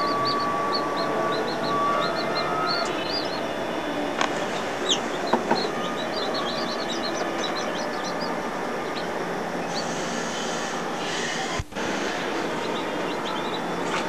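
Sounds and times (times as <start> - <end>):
chicks peeping: 0.0 - 14.0
steady hiss: 8.2 - 14.0.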